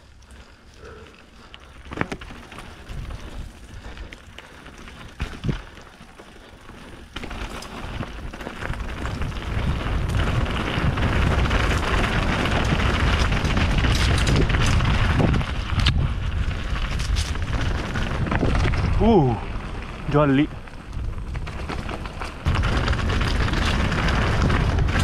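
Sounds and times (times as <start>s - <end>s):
bike tyres rolling over rock: 0.0s - 25.0s
bike knocks and rattles: 1.8s - 3.6s, 4.6s - 19.2s, 20.7s - 25.0s
wind rumble on microphone: 2.7s - 4.1s, 5.0s - 5.8s, 7.8s - 25.0s.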